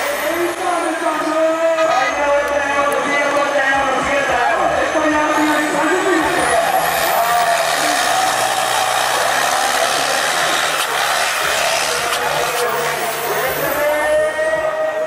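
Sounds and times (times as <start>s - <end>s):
tractor diesel engine revving: 3.8s - 14.4s.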